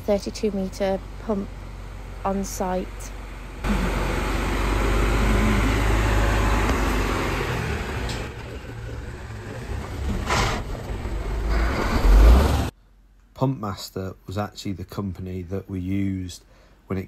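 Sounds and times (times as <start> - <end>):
truck diesel engine rumble: 0.0 - 12.7.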